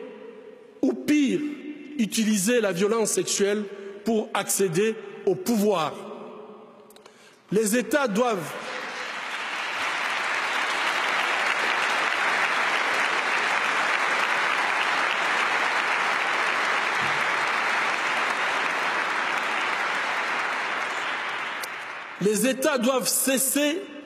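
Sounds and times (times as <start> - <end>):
large crowd clapping: 8.2 - 23.5.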